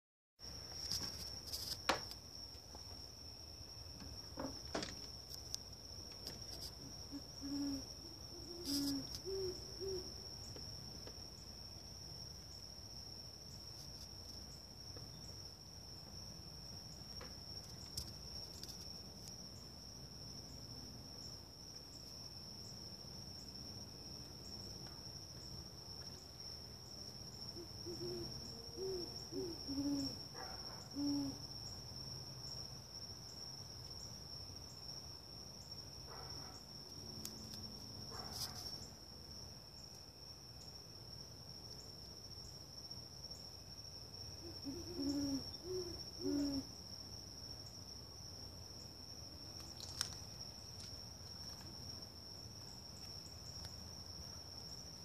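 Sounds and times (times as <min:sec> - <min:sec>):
high-pitched insect trill: 0:00.4 - 0:55.0
owl hooting: 0:06.7 - 0:10.2, 0:27.5 - 0:31.5, 0:44.4 - 0:46.7.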